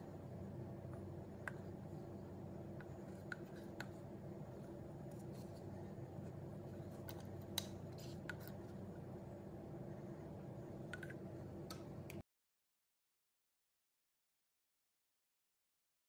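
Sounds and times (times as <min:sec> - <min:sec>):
steady low hum: 0:00.0 - 0:12.2.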